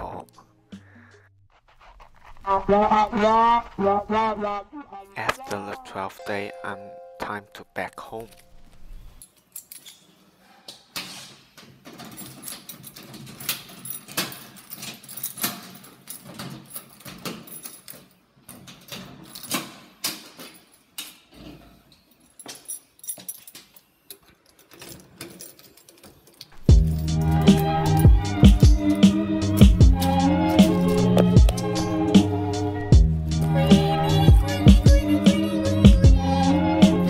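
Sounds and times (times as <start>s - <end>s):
keys jangling in a lock: 9.2s - 10.1s, 11.0s - 28.8s.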